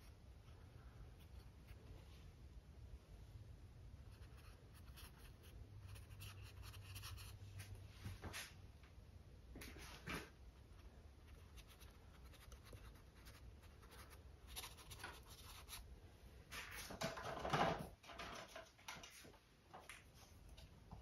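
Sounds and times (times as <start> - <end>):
paintbrush scratching on canvas: 4.1 - 7.8.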